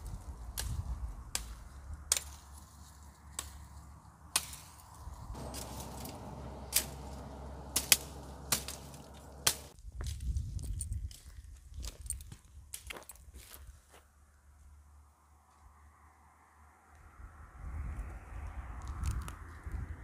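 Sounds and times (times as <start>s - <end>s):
machete chopping branches: 0.5s - 9.8s.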